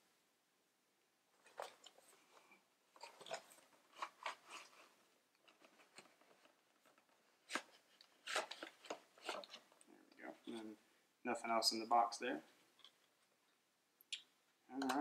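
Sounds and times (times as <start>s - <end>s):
cardboard box crinkling: 3.0s - 9.8s.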